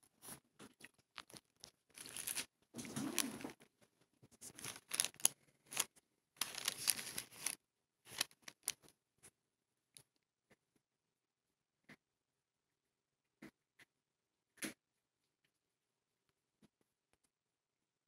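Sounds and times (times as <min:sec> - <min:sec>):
handling scraping rustles: 0:04.4 - 0:08.7.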